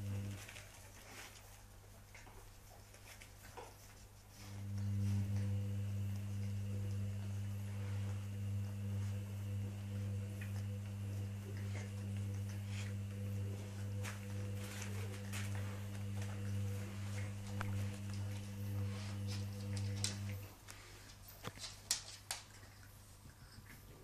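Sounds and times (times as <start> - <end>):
low two-tone hum: 0.0 - 21.6
puppies rustling on a rug: 0.0 - 24.0.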